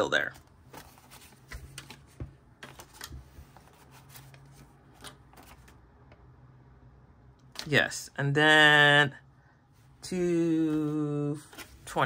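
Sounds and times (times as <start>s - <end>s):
paper banknotes rustling: 0.0s - 5.8s, 10.6s - 12.0s.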